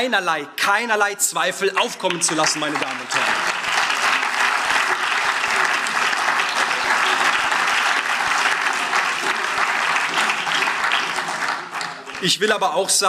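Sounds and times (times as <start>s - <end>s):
crowd applauding: 1.8s - 13.0s.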